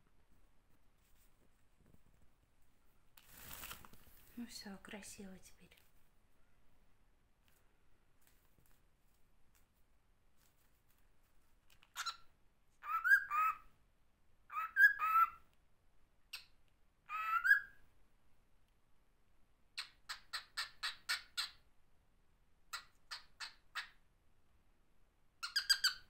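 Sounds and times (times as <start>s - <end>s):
cockatiel sharp chirps: 11.9s - 13.7s, 14.5s - 15.4s, 17.1s - 17.8s, 25.4s - 26.0s
cockatiel warbling whistles: 12.8s - 13.6s, 14.5s - 15.4s, 17.1s - 17.7s.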